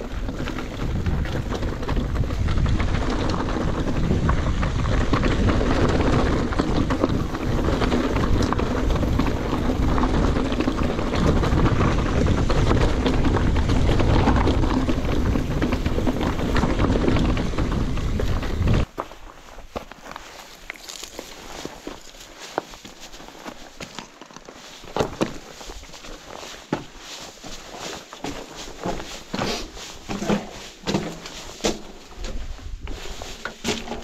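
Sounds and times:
wind buffeting microphone: 0:00.0 - 0:18.9
bike tyres rattling over stones: 0:00.0 - 0:34.0.

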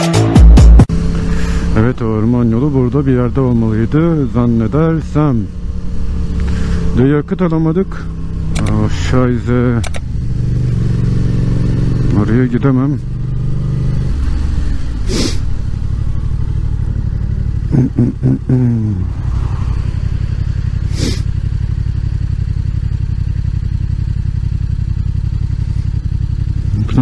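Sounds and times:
motorcycle engine running: 0:00.2 - 0:27.0
short hissing bursts: 0:15.0 - 0:15.5, 0:20.8 - 0:21.3.

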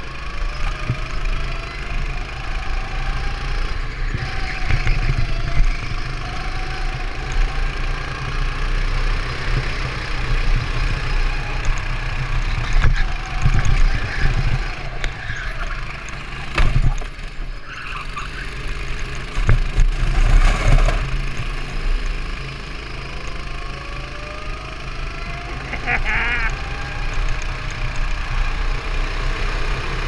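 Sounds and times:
go-kart engine running: 0:00.0 - 0:30.0.

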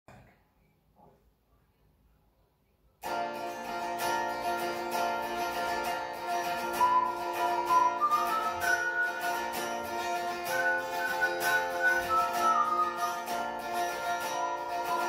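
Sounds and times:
electric guitar playing chords: 0:03.1 - 0:15.0.

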